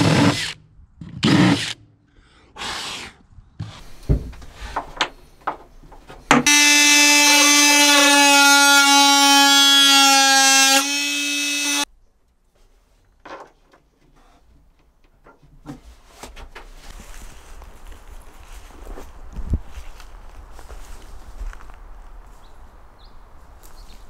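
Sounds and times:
cordless drill running: 6.5s - 8.3s.

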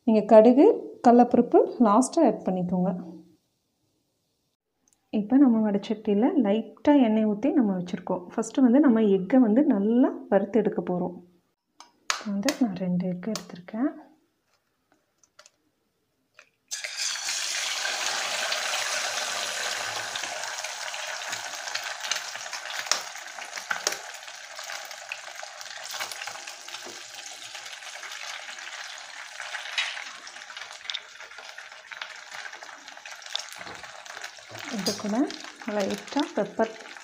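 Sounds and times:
eggs sizzling in hot oil: 16.7s - 37.0s.

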